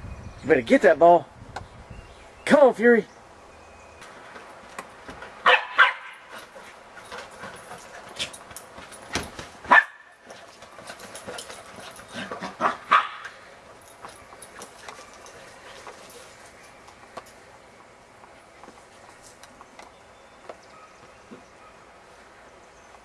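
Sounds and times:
small dogs barking and yipping: 5.4 - 8.4, 9.6 - 13.5.

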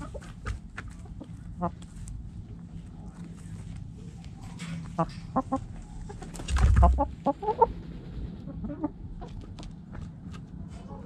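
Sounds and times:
hens clucking: 0.0 - 2.1, 4.4 - 9.7
scratching and pecking in dirt: 0.0 - 11.0
low rumble of hen brushing camera: 5.6 - 9.8.

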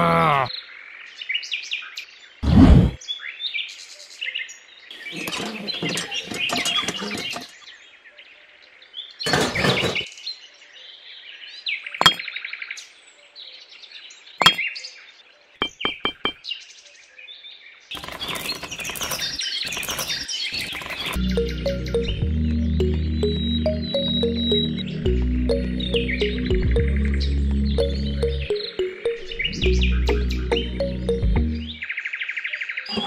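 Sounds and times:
birds chirping: 4.9 - 8.1, 11.7 - 12.7, 14.0 - 16.8, 17.9 - 33.0
clatter of small pebbles: 17.9 - 21.2
handling small craft pieces: 17.9 - 21.2.

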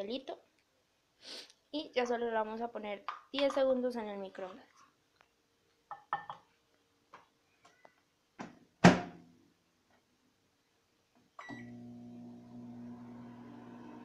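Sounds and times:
microwave humming: 11.4 - 14.0.

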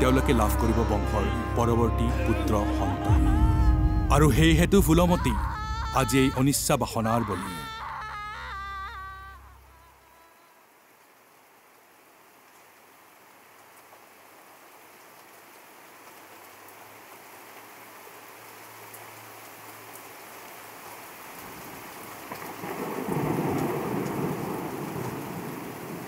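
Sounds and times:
rain hiss: 0.0 - 26.0
thunder rumble: 2.7 - 7.0, 22.4 - 26.0.

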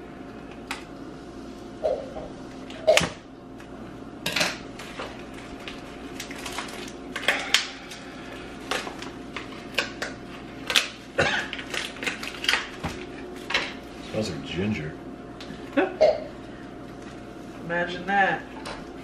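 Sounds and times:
plastic wrapping rustling: 4.8 - 13.9.

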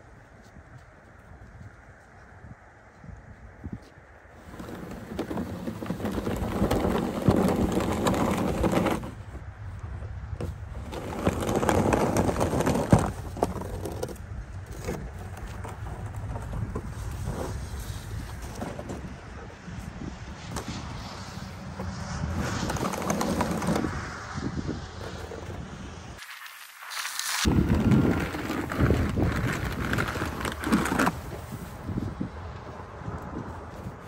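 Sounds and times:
snow pusher scraping concrete: 4.4 - 9.4, 10.4 - 19.2, 20.5 - 24.3, 26.2 - 32.0.

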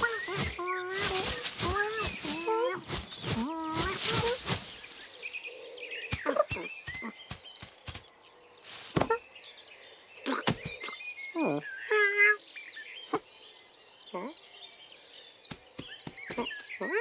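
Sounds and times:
cartoon thumps and rustles: 0.0 - 5.4, 8.8 - 9.2
birds chirping: 0.0 - 17.0.

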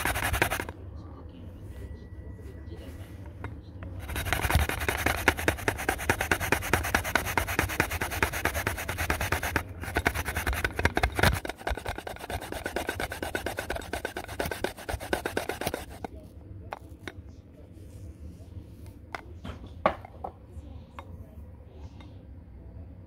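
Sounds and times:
radish rasping on a grater: 0.0 - 0.7, 4.0 - 16.1.

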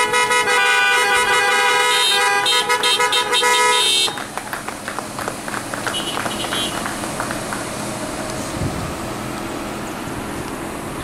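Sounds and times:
car horns honking: 0.0 - 4.5, 5.8 - 7.2.

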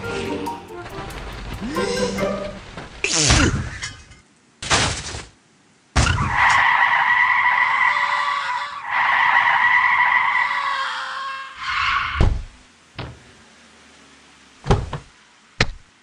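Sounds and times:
tyre screech: 6.3 - 12.3.

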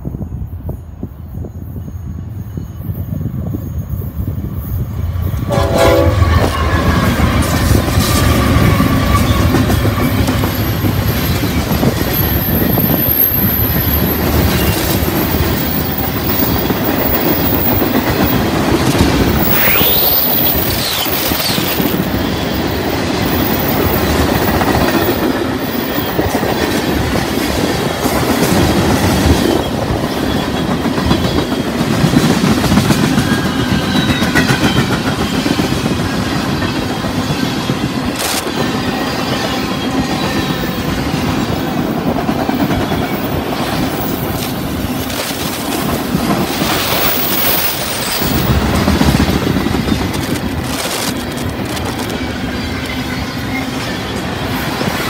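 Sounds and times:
diesel locomotives passing: 0.0 - 55.0
freight wagons rumbling and clacking: 41.4 - 54.9.

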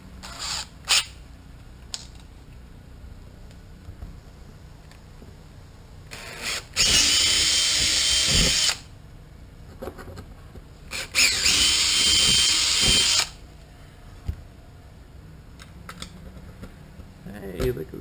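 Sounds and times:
cordless drill whining: 6.1 - 8.9, 10.9 - 13.4.

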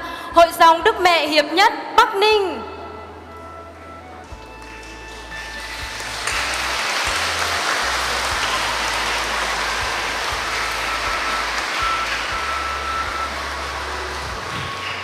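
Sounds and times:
audience applauding: 4.3 - 15.0.

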